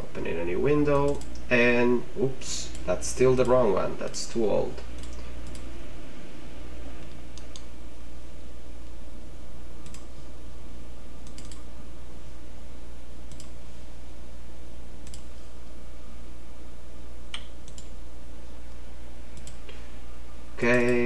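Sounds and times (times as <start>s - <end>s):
steady low hum: 0.0s - 21.0s
computer mouse clicks: 0.9s - 1.5s, 5.0s - 5.7s, 7.0s - 7.7s, 9.8s - 10.3s, 11.2s - 11.7s, 13.3s - 13.6s, 15.0s - 15.4s, 17.3s - 18.0s, 19.4s - 19.8s.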